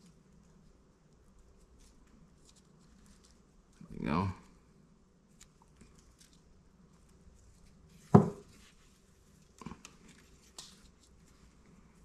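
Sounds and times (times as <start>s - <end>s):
rustling of pine needles: 1.2s - 4.6s.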